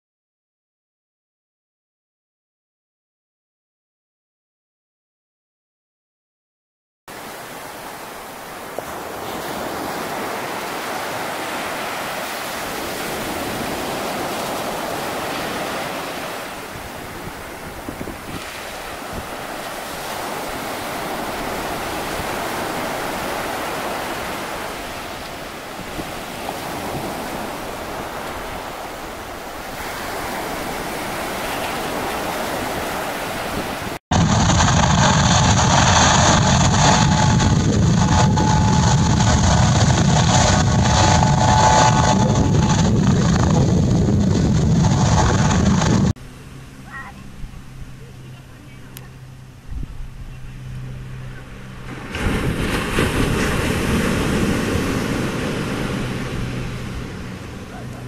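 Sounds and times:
sea surf washing: 7.1 - 58.0
wind on microphone: 7.2 - 46.2, 46.9 - 58.0
helicopter engine and rotor: 34.4 - 42.9.

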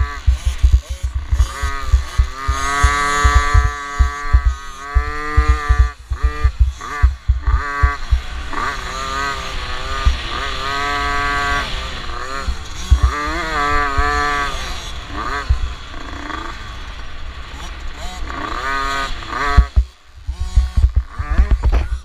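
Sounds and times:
low thumps: 0.0 - 8.3, 12.9 - 13.1, 19.6 - 22.0
two-stroke motorbike engine revving: 0.0 - 22.0.

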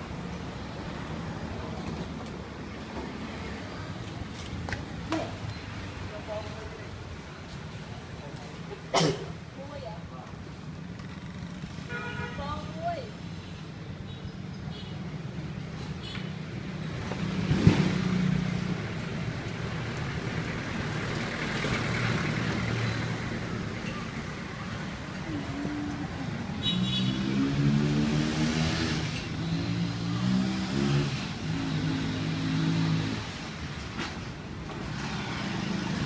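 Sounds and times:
motor vehicles running: 15.4 - 36.0.

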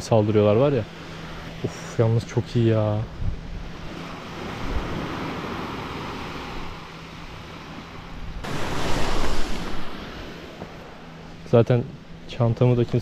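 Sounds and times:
wave breaking and rushing up: 3.2 - 11.4
surf washing on sand: 3.6 - 11.5.

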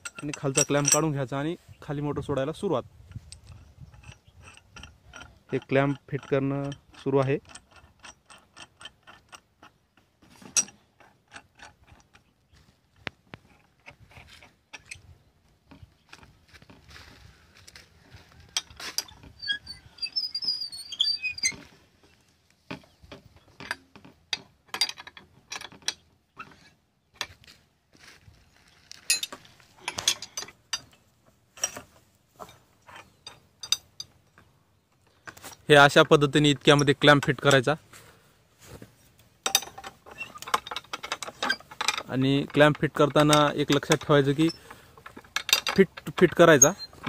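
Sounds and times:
spanner clicking on metal clamp: 0.0 - 1.1, 3.1 - 12.3, 32.9 - 34.5, 39.4 - 47.0.

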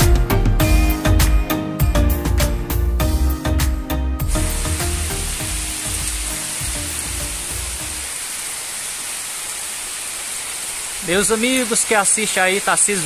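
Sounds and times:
background music: 0.0 - 8.1
heavy rain on plants: 4.3 - 13.0.

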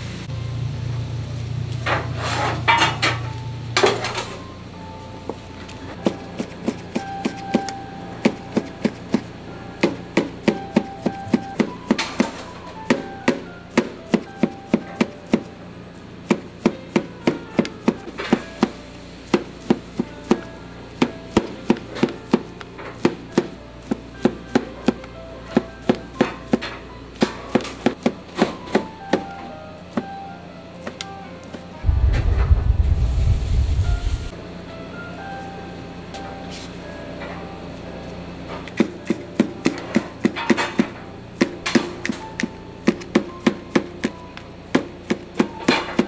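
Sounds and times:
knife chopping on cutting board: 6.0 - 15.5, 16.3 - 26.6.

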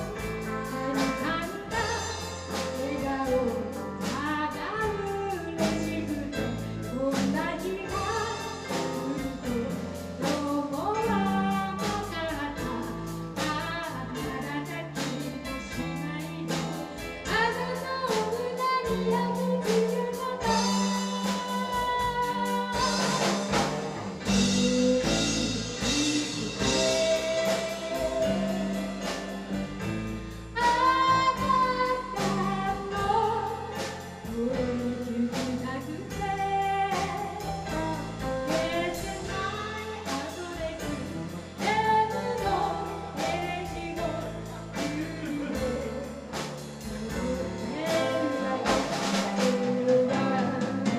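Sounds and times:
drum kit beat: 0.0 - 50.9
electric bass: 0.0 - 50.9
woman singing: 0.0 - 50.9.

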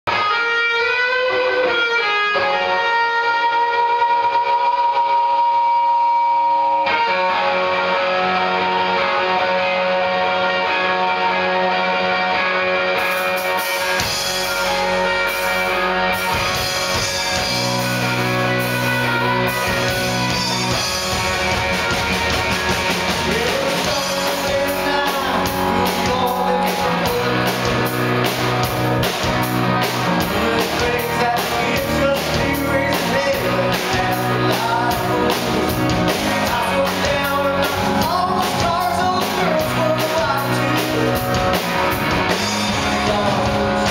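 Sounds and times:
bass guitar: 0.0 - 43.9
electric guitars: 0.1 - 43.9
drum kit: 12.5 - 43.9
man singing: 23.0 - 28.4, 29.8 - 43.9.

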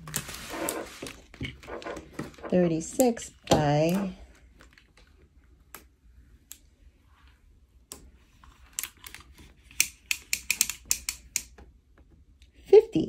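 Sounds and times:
tape measure clicks and taps: 9.7 - 11.6.

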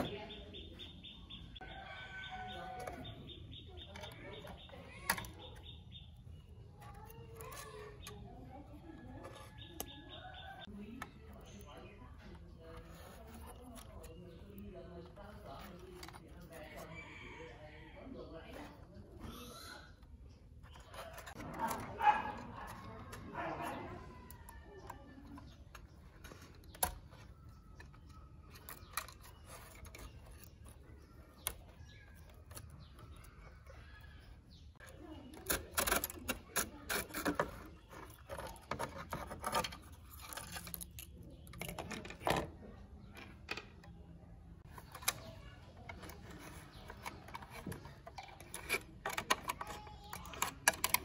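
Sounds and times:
plastic parts clicking and clattering: 20.0 - 44.0, 44.6 - 51.0.

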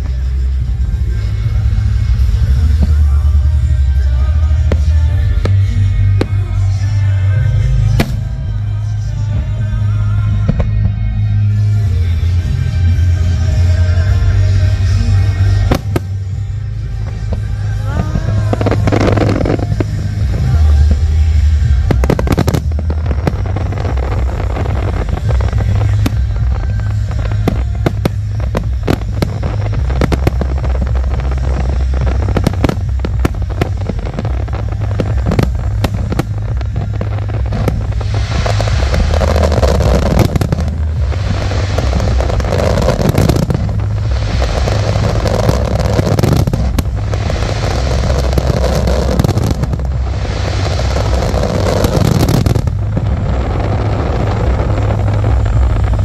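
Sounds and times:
fireworks bangs and crackles: 0.0 - 56.0
steady low rumble: 0.0 - 56.0
hissing crackle: 13.8 - 56.0.

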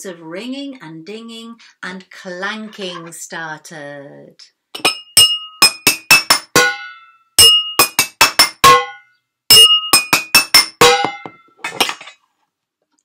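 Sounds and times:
glass and objects clinking: 4.8 - 6.5, 7.4 - 12.2.

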